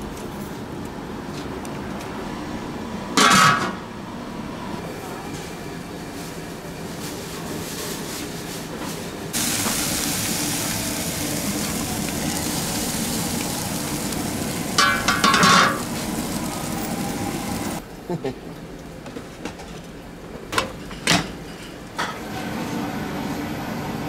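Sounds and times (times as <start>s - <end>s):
bubbling and steam hiss: 9.3s - 17.8s
metal lid scraping and clattering: 14.8s - 15.8s.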